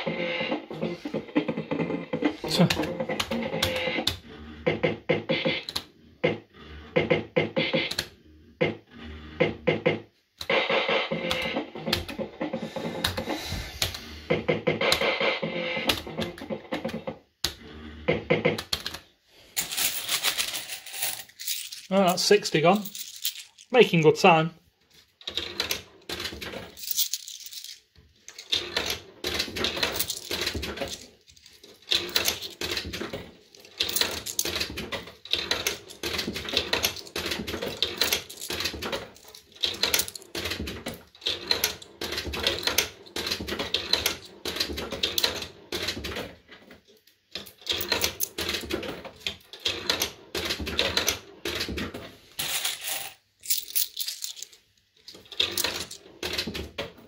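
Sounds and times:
coins clattering into a slot machine: 19.6s - 24.1s, 25.3s - 40.6s, 47.6s - 48.7s, 52.4s - 56.4s
coins rattling in hand: 19.6s - 24.2s, 25.3s - 44.4s, 52.4s - 56.1s.

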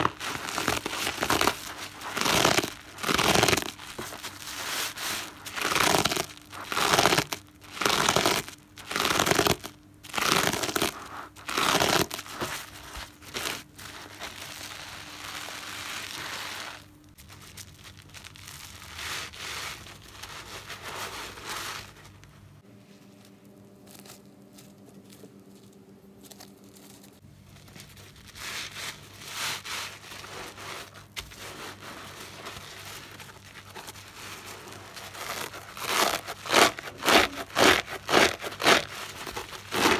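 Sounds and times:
soapy sponge squelching: 0.0s - 7.3s, 27.8s - 39.9s.

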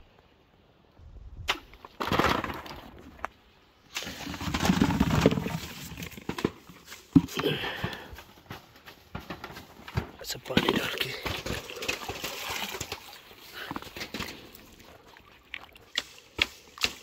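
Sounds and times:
fruit clattering into plastic bucket: 1.5s - 3.3s, 4.0s - 14.6s
fruit falling onto plastic sheet: 1.5s - 3.3s.

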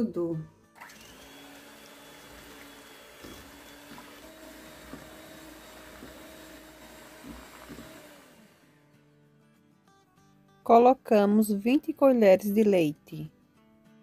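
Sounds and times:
electric hand mixer whisking: 0.8s - 8.8s.

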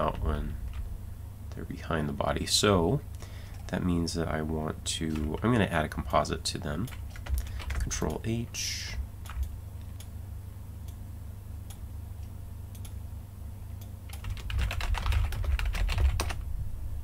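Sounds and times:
typing on computer keyboard: 6.8s - 7.9s, 14.1s - 16.4s.

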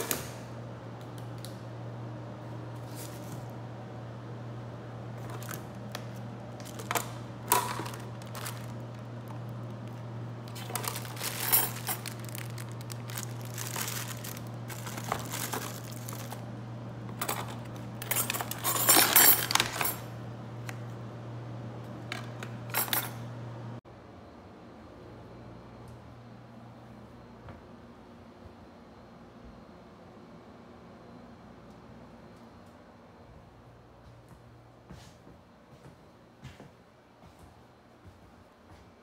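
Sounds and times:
steady low hum: 0.0s - 39.0s
household items clicking and clinking: 5.2s - 20.0s, 22.1s - 23.2s.

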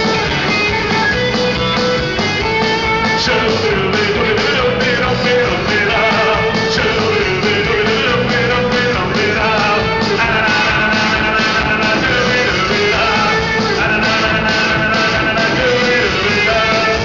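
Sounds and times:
bass guitar: 0.0s - 17.0s
drum beat: 0.0s - 17.0s
electric guitars: 0.0s - 17.0s
man singing: 2.8s - 17.0s.

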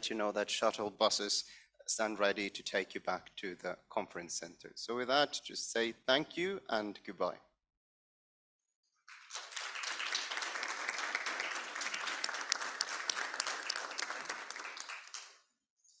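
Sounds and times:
audience applause: 9.1s - 15.4s.

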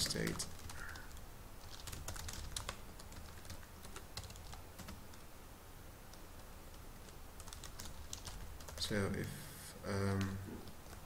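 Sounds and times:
computer keyboard typing: 0.0s - 5.0s, 6.1s - 8.9s, 10.1s - 11.0s
faint low hum: 0.0s - 11.0s.

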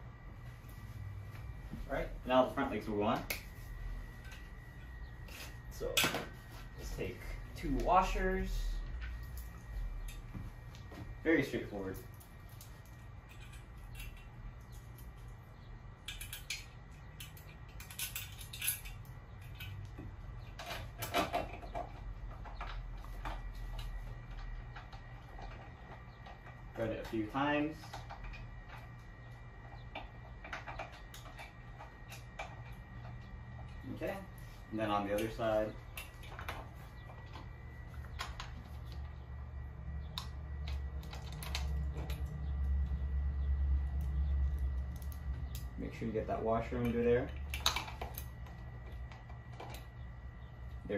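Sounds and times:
low hum: 0.0s - 50.9s
metal hardware clinking: 12.0s - 15.1s, 16.0s - 21.7s.

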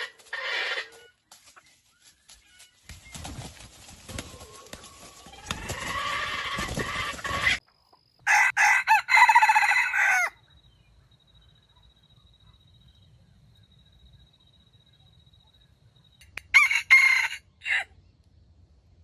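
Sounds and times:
rooster crowing: 8.2s - 10.4s, 16.5s - 17.9s.

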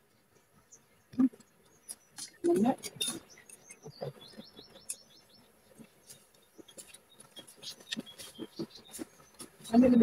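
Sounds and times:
small bird chirping: 0.5s - 10.0s
clicks and taps from eating: 5.7s - 9.7s.

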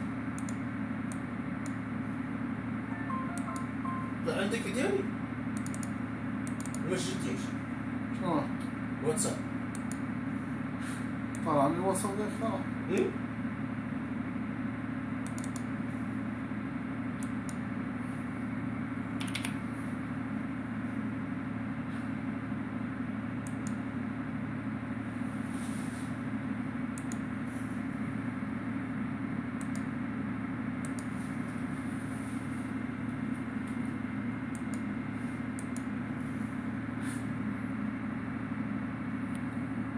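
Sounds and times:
low machine hum: 0.0s - 39.9s
faint clicks: 5.6s - 6.8s, 15.2s - 15.7s.

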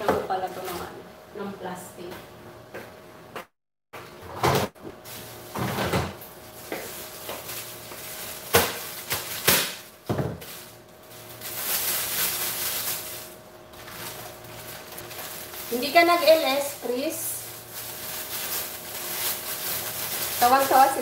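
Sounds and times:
plastic bag rustling: 5.0s - 21.0s.

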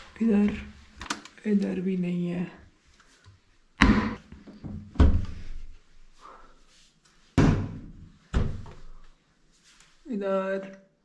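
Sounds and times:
wooden cupboard doors banging shut: 3.8s - 5.4s.

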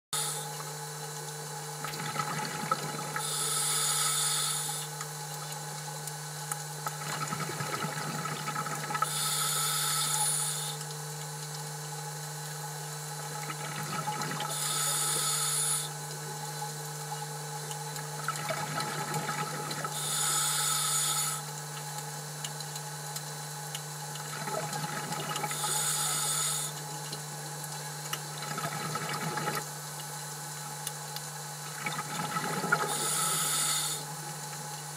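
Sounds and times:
steady low hum: 0.2s - 34.9s
exhaust bubbles burbling: 1.6s - 11.4s, 12.3s - 34.7s
diver breathing through regulator: 3.2s - 4.9s, 9.0s - 10.8s, 14.5s - 16.0s, 19.9s - 21.5s, 25.5s - 26.8s, 32.7s - 34.1s.

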